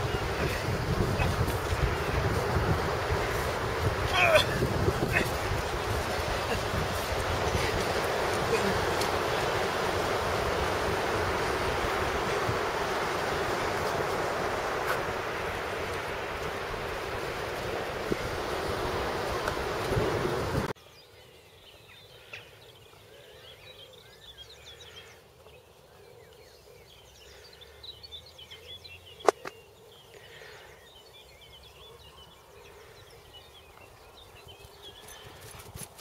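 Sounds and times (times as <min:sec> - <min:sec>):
wind buffeting microphone: 0:00.0 - 0:20.8
faint birdsong: 0:20.7 - 0:36.0.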